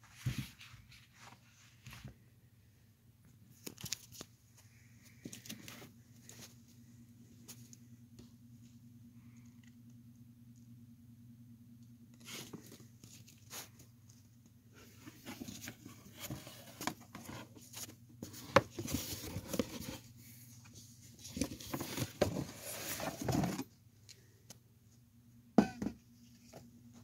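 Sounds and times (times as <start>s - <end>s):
cardboard box rustling and scraping: 14.8s - 23.7s.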